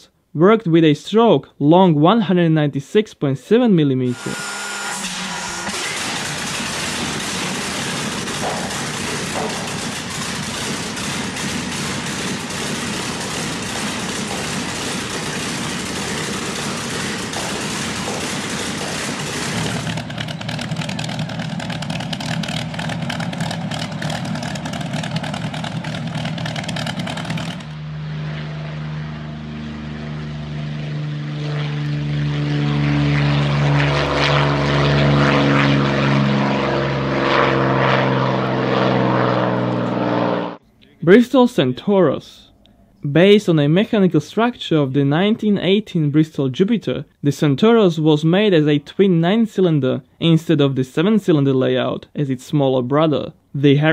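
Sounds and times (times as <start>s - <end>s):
propeller drone: 4.0s - 41.0s
aircraft engine running hard: 4.1s - 40.6s.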